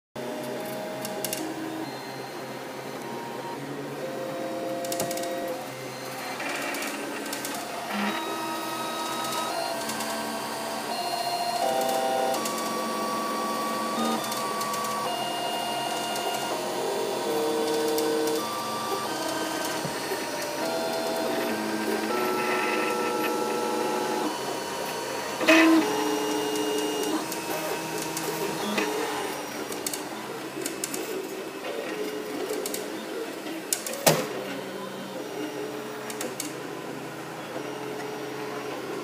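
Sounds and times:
stepper motors whining: 0:04.7 - 0:31.2.

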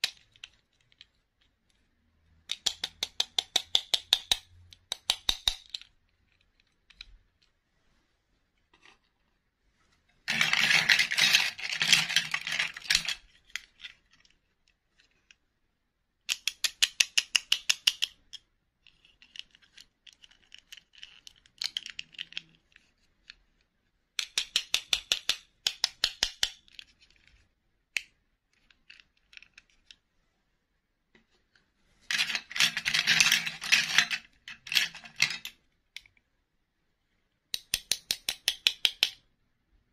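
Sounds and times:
plastic dolls clattering: 0:10.2 - 0:14.1, 0:32.1 - 0:35.6.

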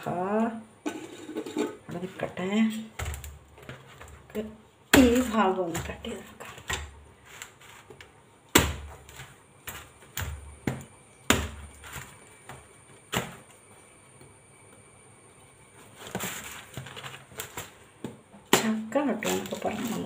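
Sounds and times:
rustling: 0:05.2 - 0:08.2, 0:15.7 - 0:18.0
knife chopping on a bamboo mat: 0:08.5 - 0:13.4.

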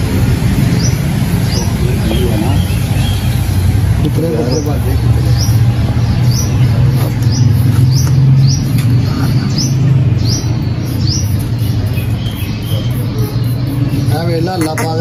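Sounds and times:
small bird chirping: 0:04.4 - 0:15.0.

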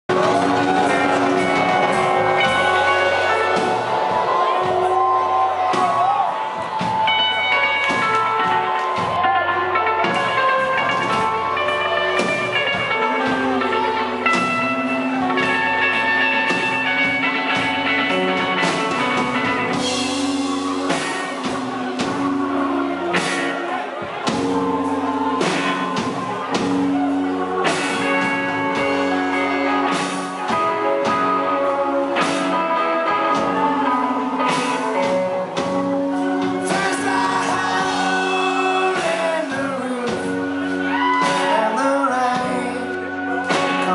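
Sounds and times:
drum kit: 0:00.0 - 0:43.9
electric bass: 0:00.0 - 0:43.9
electric guitars: 0:00.0 - 0:43.9
man singing: 0:36.4 - 0:43.9.

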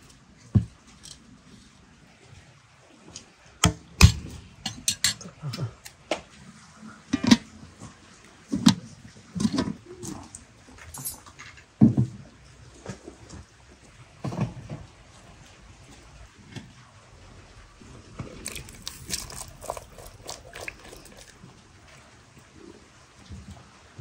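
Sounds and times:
chestnuts clicking and splashing into pot: 0:18.3 - 0:21.4.

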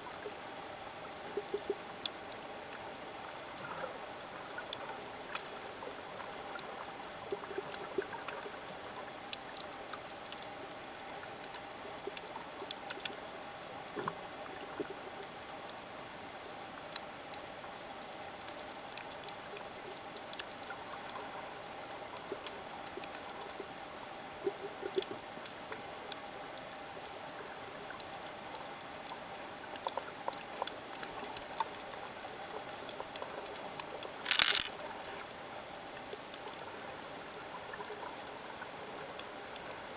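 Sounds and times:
crackling clicks: 0:33.8 - 0:34.9.

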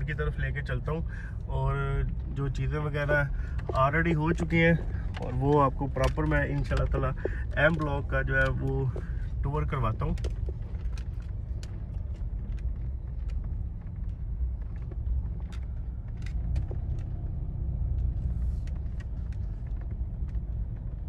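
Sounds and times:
car driving on dirt road: 0:00.0 - 0:21.0
light clicks and ticks: 0:00.4 - 0:21.0.

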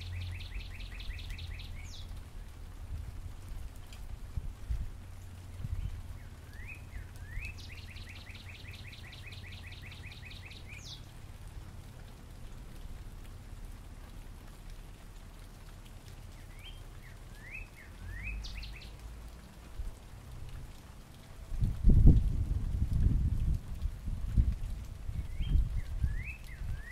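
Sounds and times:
bird singing whistles: 0:00.1 - 0:02.1, 0:05.8 - 0:11.0, 0:16.5 - 0:18.9, 0:25.2 - 0:26.9.

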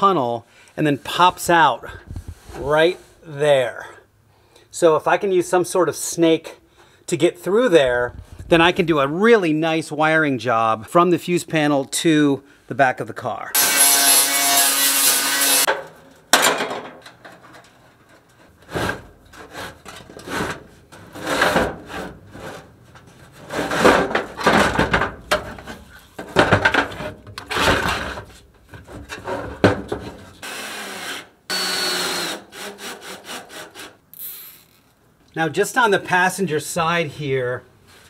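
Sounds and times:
angle grinder grinding steel: 0:13.6 - 0:15.7
cordless drill whining: 0:30.4 - 0:33.0.

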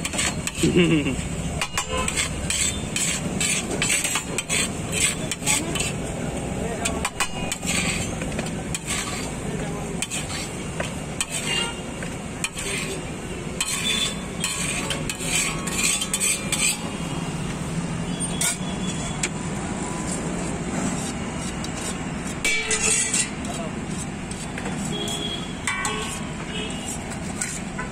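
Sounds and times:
metal spatula scraping pan: 0:00.0 - 0:06.2, 0:06.8 - 0:17.4, 0:18.1 - 0:27.9.

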